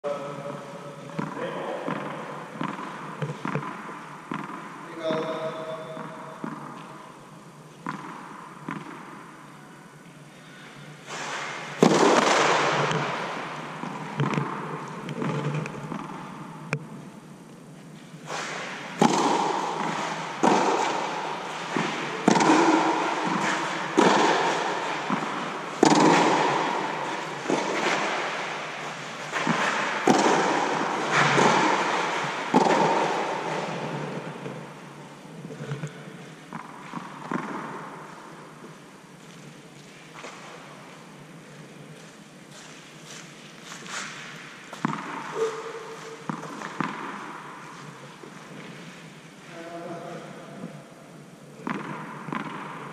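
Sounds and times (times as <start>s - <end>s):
tennis ball struck by racquets: 1.2s - 5.2s, 7.8s - 9.2s, 11.1s - 16.9s, 18.2s - 34.9s, 36.5s - 38.2s, 44.0s - 48.0s, 51.6s - 52.9s
ball bouncing on clay: 21.8s - 26.7s.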